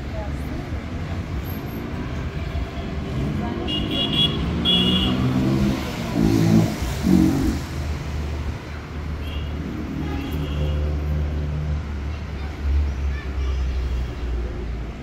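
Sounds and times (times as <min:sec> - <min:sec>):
vehicle engines rumbling: 0:00.0 - 0:15.0
car horn toots: 0:03.7 - 0:05.4.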